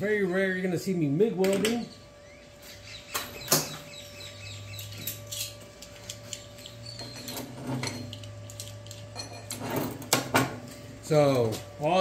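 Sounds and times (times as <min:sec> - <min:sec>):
low electrical hum: 0:00.0 - 0:12.0
metal clinks and knocks: 0:05.0 - 0:10.6.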